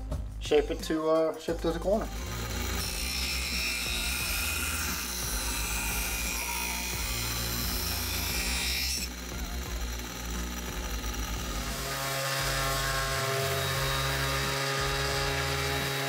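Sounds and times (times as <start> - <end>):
background music: 0.0 - 16.0
bench grinder grinding plastic: 1.5 - 16.0.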